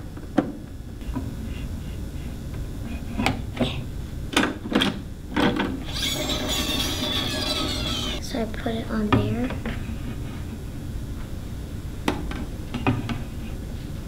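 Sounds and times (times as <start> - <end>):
scratchy record rasp: 5.8 - 8.2.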